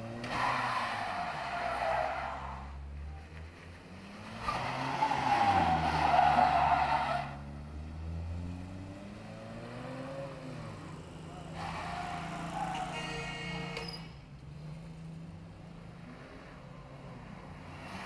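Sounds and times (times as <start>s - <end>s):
car engine revving: 3.9s - 13.0s.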